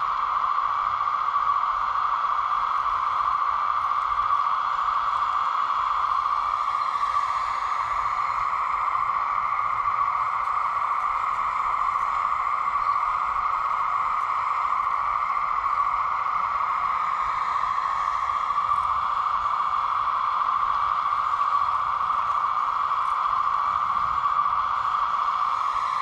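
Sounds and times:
hydraulic pump whirring hiss: 0.0s - 26.0s.

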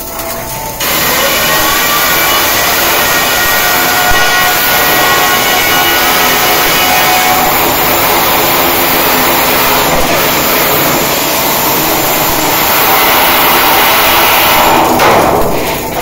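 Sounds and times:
welding arc hissing: 0.0s - 16.0s.

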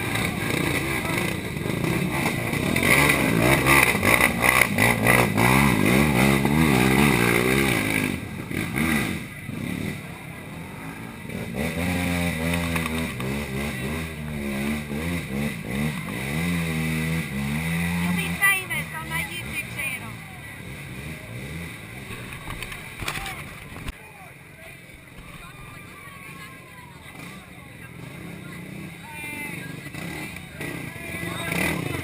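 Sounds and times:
quad engine revving: 0.0s - 23.9s, 26.1s - 32.0s.

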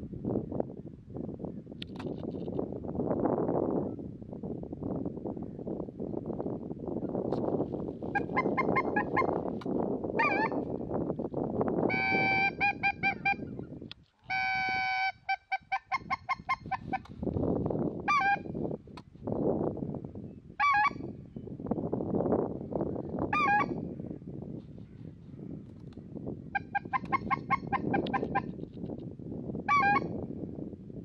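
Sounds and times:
wind rumbling on microphone: 0.0s - 31.0s
geese honking: 8.2s - 9.4s, 10.2s - 10.6s, 11.9s - 13.4s.

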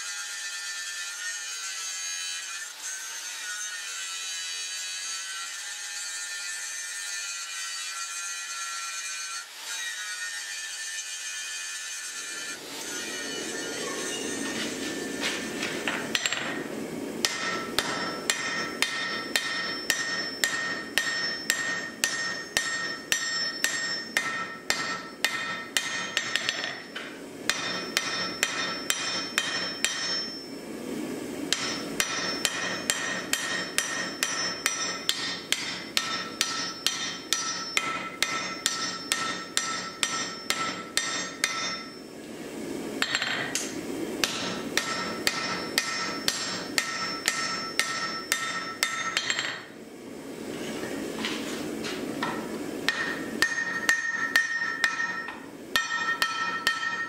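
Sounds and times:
hammer striking steel on anvil: 13.2s - 30.6s, 31.5s - 42.1s, 43.0s - 49.7s, 52.2s - 57.0s.

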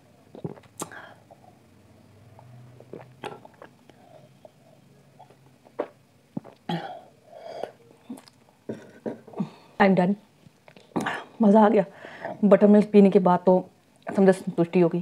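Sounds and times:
person gulping: 0.3s - 1.6s, 2.3s - 9.6s.

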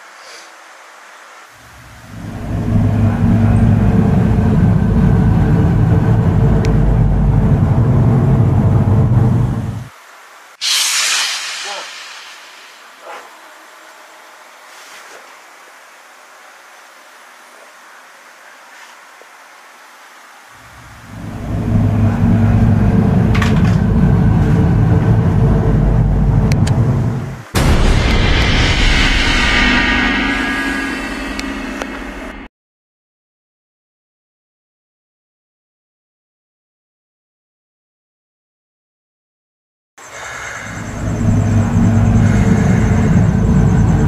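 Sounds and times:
low rumble with deep hum: 1.8s - 9.9s, 20.8s - 32.5s, 40.7s - 44.0s.

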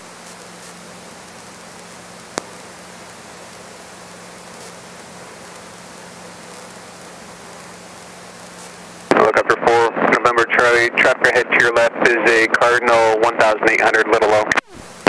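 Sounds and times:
faint steady hum: 0.0s - 15.0s
headset intercom hiss: 6.4s - 15.0s.

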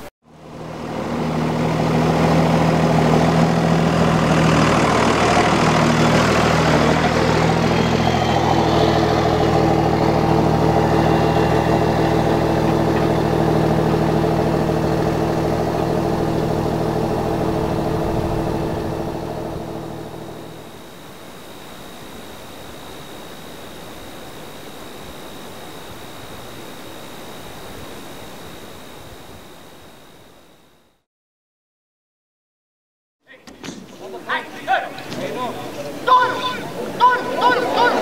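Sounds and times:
vehicle engine idling: 0.3s - 20.9s.

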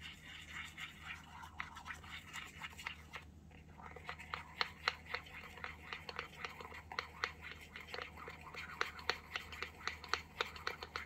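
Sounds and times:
utensil scraping in steel bowl: 0.0s - 3.2s.

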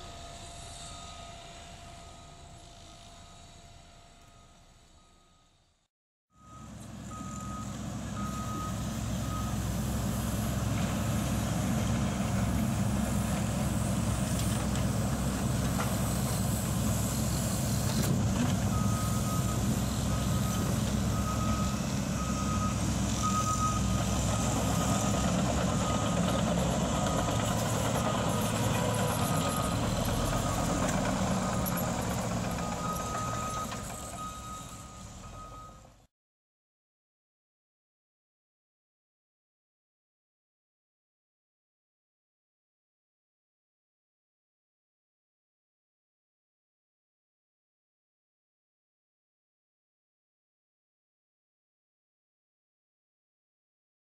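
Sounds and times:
diesel engine rumble: 6.4s - 36.1s.

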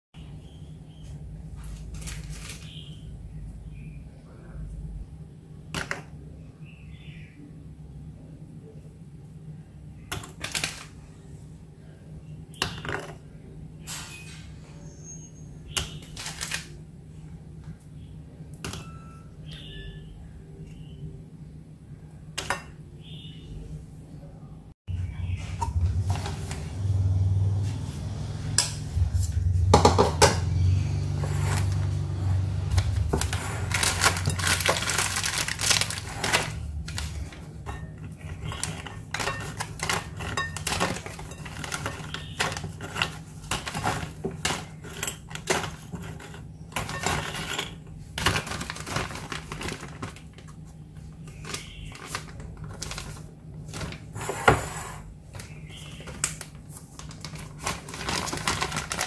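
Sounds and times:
plastic bag rustling: 1.5s - 3.0s, 31.0s - 54.3s, 55.0s - 59.0s
low hum: 16.8s - 44.4s
cookies clinking against glass bowl: 32.8s - 50.0s.

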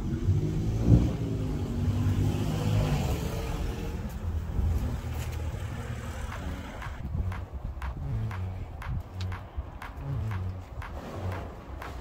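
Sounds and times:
engine running: 3.0s - 12.0s.

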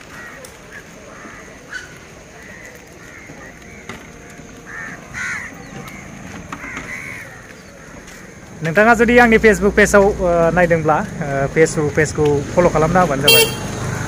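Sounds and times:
birds calling: 0.0s - 9.7s, 13.3s - 13.6s.

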